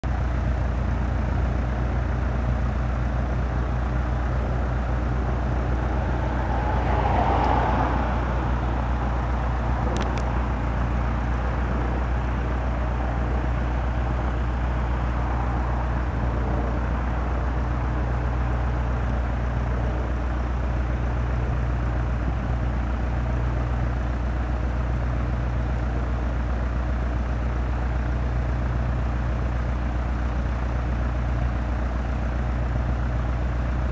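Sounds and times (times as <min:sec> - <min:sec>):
engine droning: 0:00.0 - 0:33.9.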